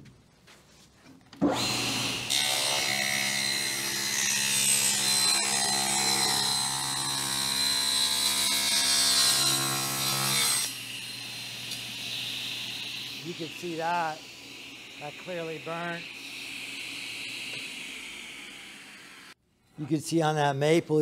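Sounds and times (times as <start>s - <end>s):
table saw cutting a board: 1.4s - 19.4s
saw motor hum: 1.5s - 19.4s.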